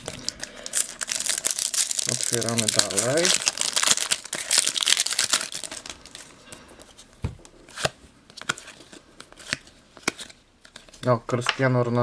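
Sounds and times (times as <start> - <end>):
foil packet crinkling and tearing: 0.0 - 6.3
cards rustling and clicking: 6.5 - 11.6.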